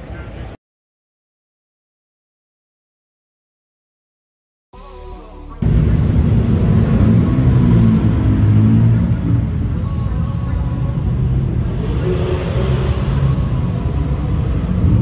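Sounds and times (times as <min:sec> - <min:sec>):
car engine exhaust rumble: 0:05.2 - 0:15.0.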